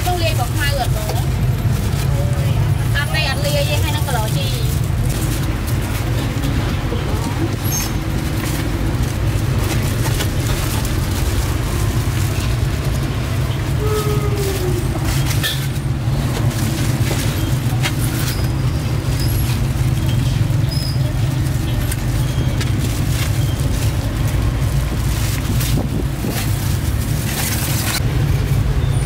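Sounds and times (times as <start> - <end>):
low rumble of traffic: 0.0 - 29.0
foam boxes clicking: 7.5 - 28.1.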